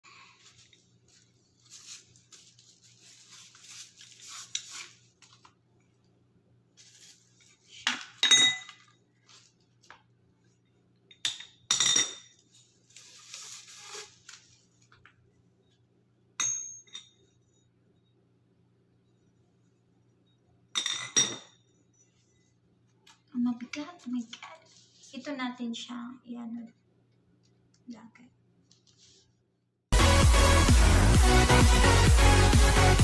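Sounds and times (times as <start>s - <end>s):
soft rustling and scraping: 24.0s - 25.3s, 28.6s - 29.4s.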